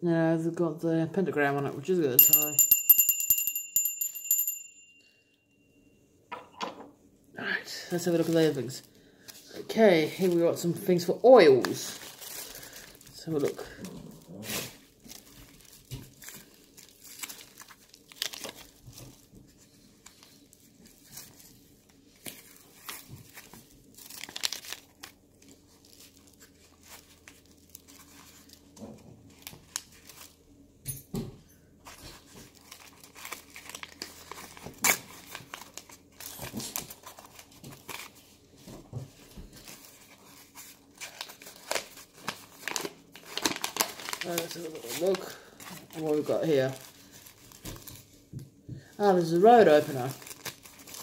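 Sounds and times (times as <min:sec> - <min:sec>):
paper crinkling and tearing: 0:11.5 - 0:30.4, 0:32.1 - 0:38.7, 0:39.6 - 0:48.1, 0:49.6 - 0:51.0.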